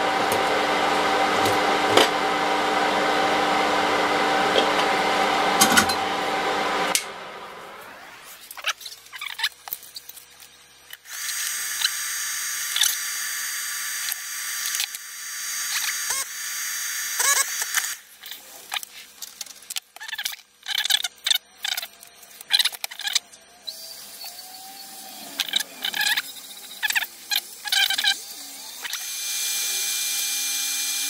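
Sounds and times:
small motor whining: 8.0 - 19.2, 20.8 - 31.0
handling clicks and squeaks: 8.5 - 11.1, 18.2 - 24.5, 25.3 - 28.2.

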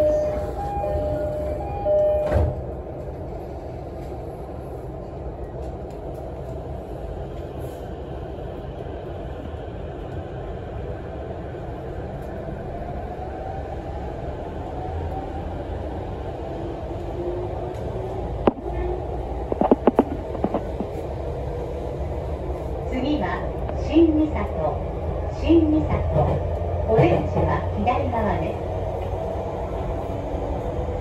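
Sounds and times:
train rumbling: 0.0 - 31.0
train doors shutting thump: 0.8 - 2.8.

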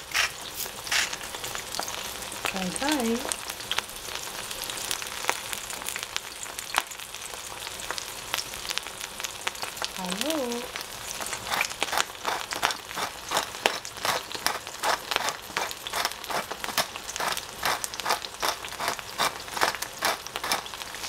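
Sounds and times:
pepper mill grinding: 0.0 - 3.4, 10.0 - 21.0.

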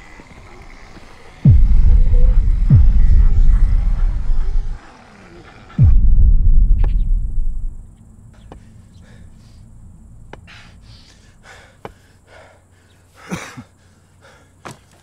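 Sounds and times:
person breathing heavily: 8.4 - 15.0.

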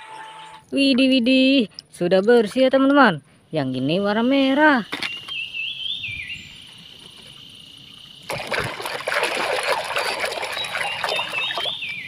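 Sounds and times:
water sloshing in plastic basin: 8.3 - 12.0.

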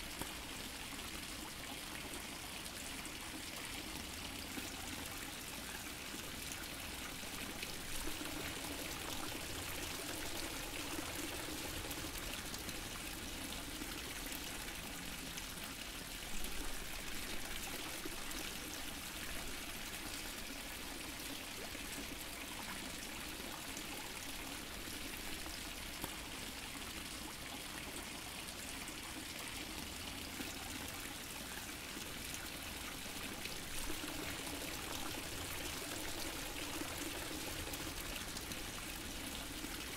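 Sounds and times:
fountain water splashing: 0.0 - 19.2, 30.2 - 39.9.

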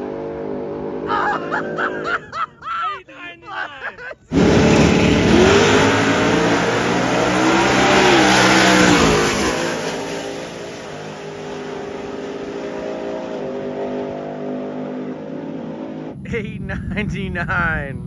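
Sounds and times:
trucks revving at full throttle: 0.0 - 2.6, 4.2 - 18.0.

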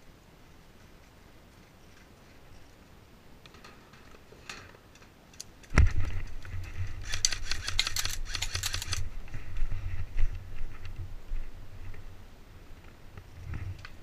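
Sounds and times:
low rumble of camera movement: 0.0 - 14.0.

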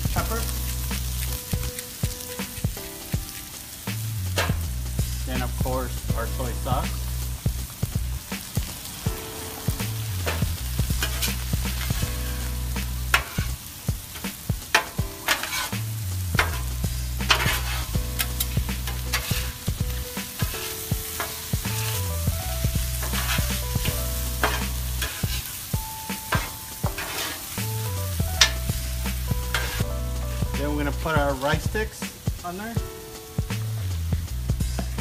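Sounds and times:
food sizzling on a griddle: 0.0 - 35.0
metal spatulas scraping steel: 11.0 - 22.2, 23.0 - 28.7, 29.4 - 29.8.

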